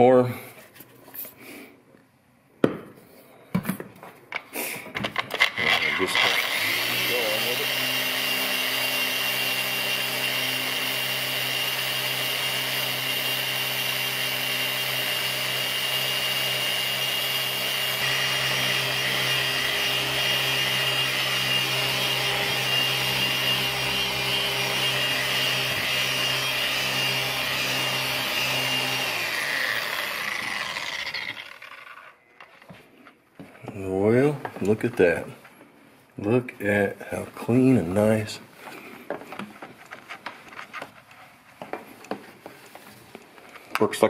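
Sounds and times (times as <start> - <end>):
orbital buffer running: 5.4 - 32.2.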